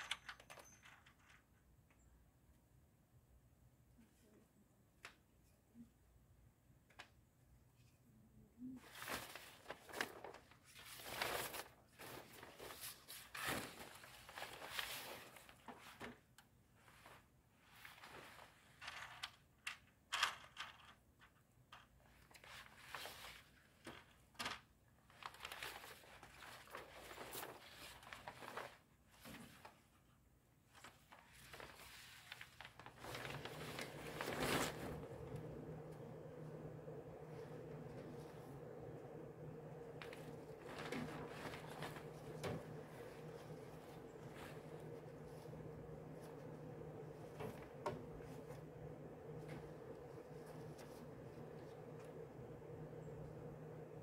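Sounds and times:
plastic sheeting crinkling: 8.8 - 16.2, 22.3 - 24.1, 25.0 - 29.8, 30.7 - 54.0
steady low hum: 32.8 - 54.0.

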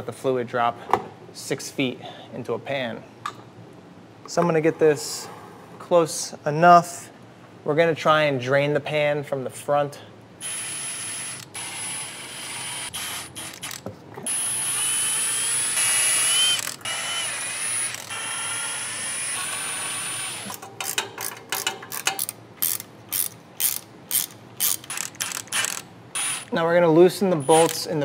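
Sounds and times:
electric ratchet whirring: 10.4 - 26.5
hand ratchet clicks: 12.8 - 13.9, 20.4 - 26.5.

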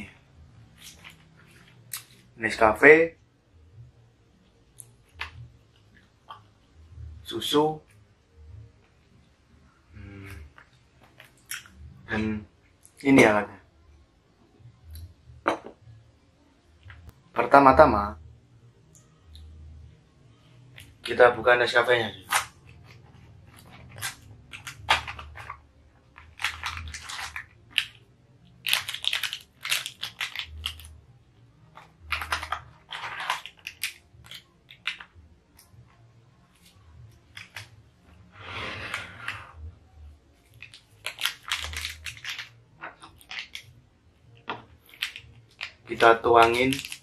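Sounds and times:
cardboard and foil crinkling: 23.5 - 28.0, 28.6 - 31.0, 32.0 - 35.0, 40.5 - 42.6, 44.8 - 47.0.

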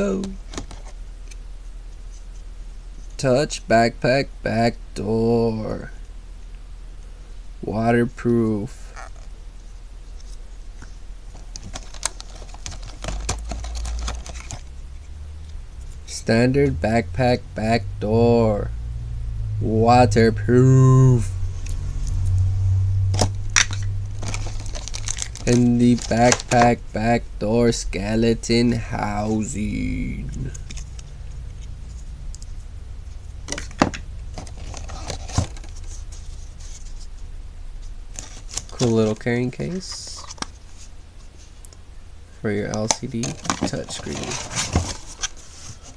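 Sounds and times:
low steady hum: 0.0 - 45.9.

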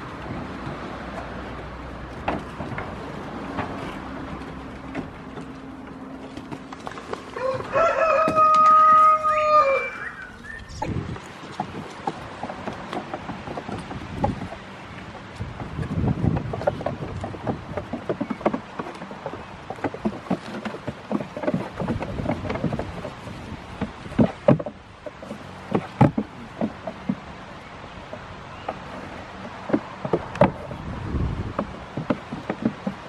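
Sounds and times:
goats butting knocks: 0.0 - 9.9, 10.7 - 33.0
hooves clattering on wood: 0.0 - 33.0.

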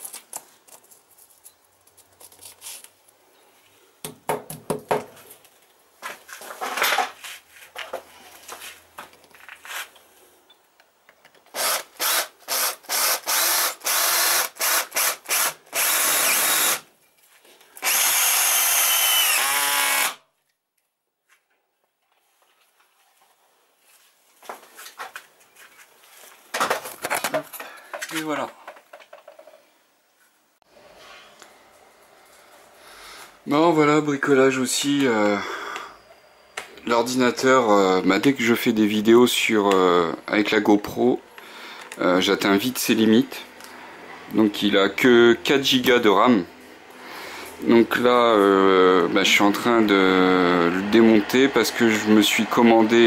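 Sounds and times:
drill driving screw into wall: 11.5 - 16.9, 17.8 - 20.2.

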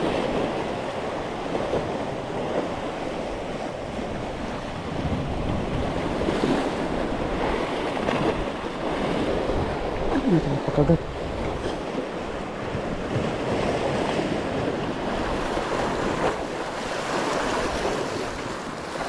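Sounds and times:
wind rumbling on microphone: 0.0 - 19.0
surf breaking on rocks: 4.4 - 19.0.

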